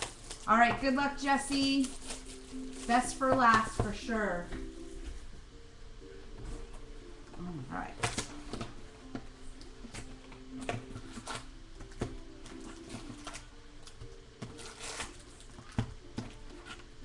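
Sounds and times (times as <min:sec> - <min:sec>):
wrapper crinkling: 0:00.0 - 0:00.6, 0:01.4 - 0:03.8, 0:14.5 - 0:15.7.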